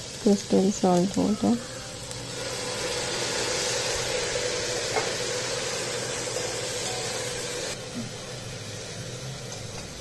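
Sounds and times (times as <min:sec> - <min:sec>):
onions sizzling in a pot: 0:00.0 - 0:10.0.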